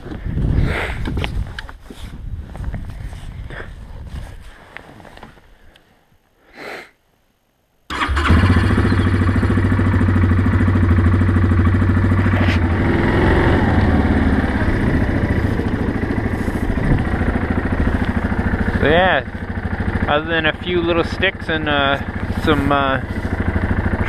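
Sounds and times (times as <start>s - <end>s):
atv engine running: 7.9s - 24.0s.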